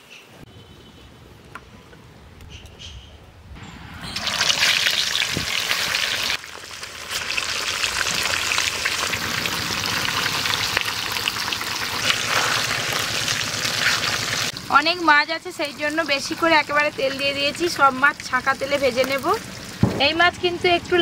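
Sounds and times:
fish deep-frying in hot oil: 4.1 - 20.2.

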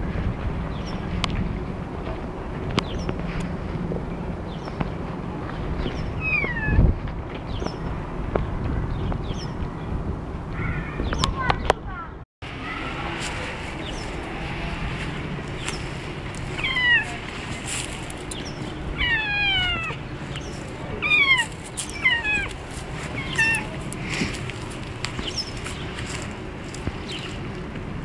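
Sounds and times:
cat meowing: 16.6 - 17.2, 19.0 - 20.0, 20.9 - 22.6, 23.2 - 23.7.

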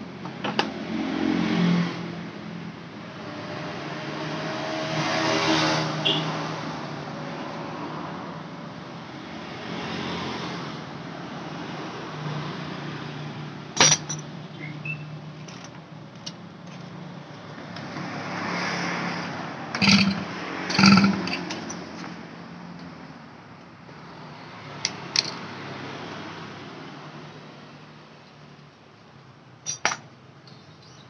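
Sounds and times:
metal tools clanking: 13.8 - 14.3, 19.8 - 21.8, 29.6 - 30.0
engine hum: 19.2 - 23.0.

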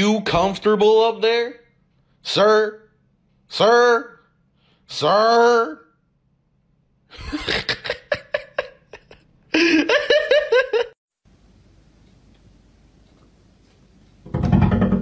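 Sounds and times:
person laughing: 7.1 - 11.0
faint steady hiss: 11.1 - 14.3.

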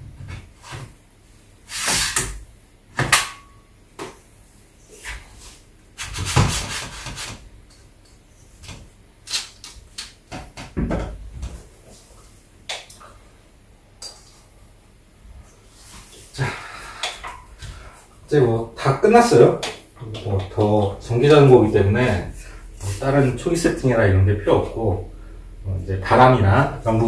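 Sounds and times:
knocks and clicks of bike parts: 2.2 - 3.4, 9.6 - 11.6.

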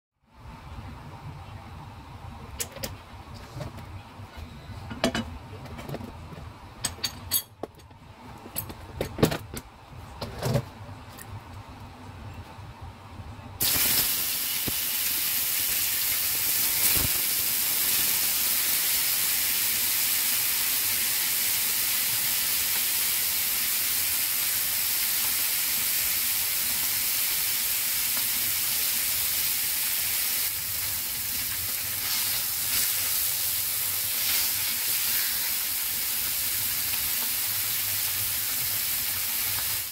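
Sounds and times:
fish sizzling in hot oil: 13.6 - 39.9.

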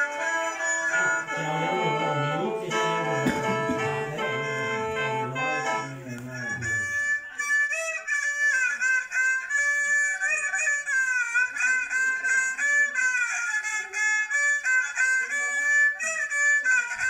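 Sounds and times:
reedy mouth organ chords: 0.0 - 7.4
bowed fiddle sliding melody: 0.0 - 17.0.

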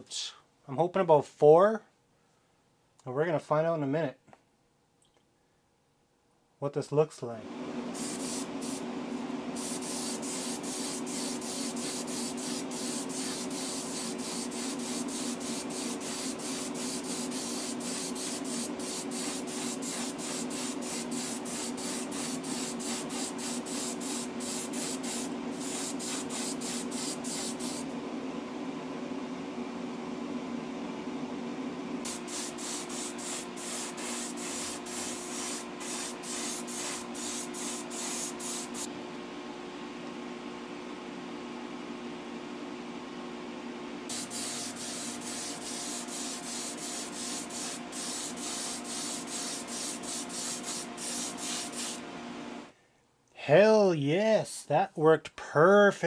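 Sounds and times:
airbrush hissing puffs: 7.9 - 8.9, 9.5 - 27.9, 32.0 - 38.9, 44.1 - 52.0
low machine hum: 27.6 - 32.1.

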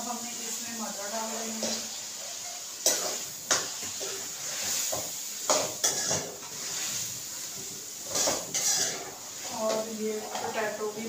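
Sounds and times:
frying hiss: 0.0 - 11.0
spoon scraping metal pan: 2.8 - 7.0, 8.0 - 10.8.

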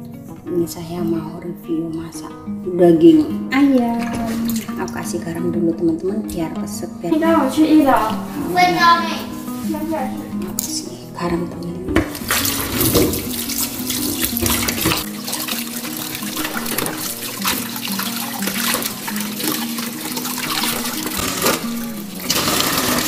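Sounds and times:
tap running into steel bowl: 11.9 - 23.0
water splashing: 12.0 - 23.0.

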